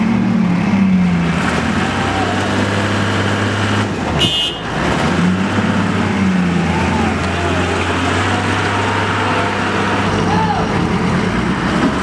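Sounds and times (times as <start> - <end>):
diesel engines under load: 0.0 - 12.0.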